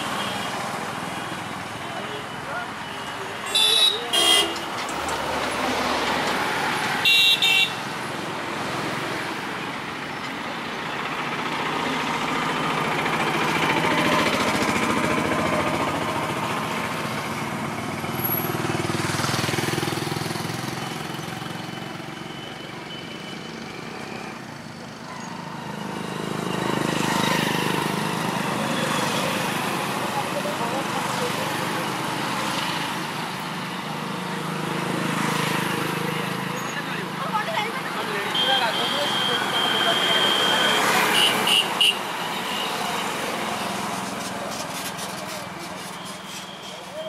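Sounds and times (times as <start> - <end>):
road traffic passing: 0.0 - 47.0
vehicle horn toot: 3.5 - 4.7, 7.0 - 7.8, 38.3 - 42.8.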